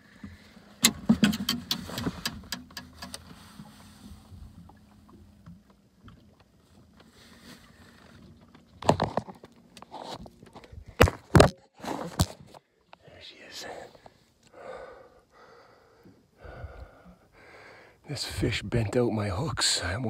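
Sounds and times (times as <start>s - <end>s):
sharp knocks and clicks: 0.8s - 3.2s.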